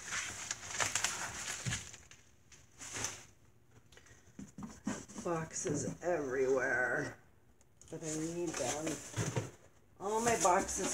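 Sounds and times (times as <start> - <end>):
cardboard boxes rustling: 0.0 - 3.4, 8.0 - 10.9.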